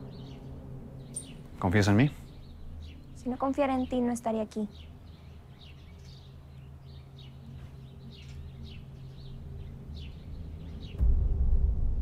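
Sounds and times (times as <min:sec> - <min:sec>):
birds chirping: 0:00.0 - 0:11.0
steady low hum: 0:00.0 - 0:12.0
loud deep rumble: 0:10.5 - 0:12.0.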